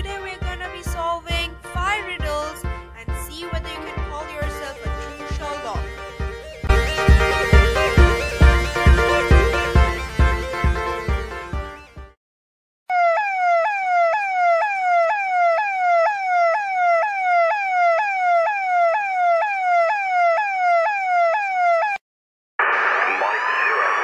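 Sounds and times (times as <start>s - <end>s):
electronic police siren wailing: 3.8s - 11.9s, 12.9s - 22.0s.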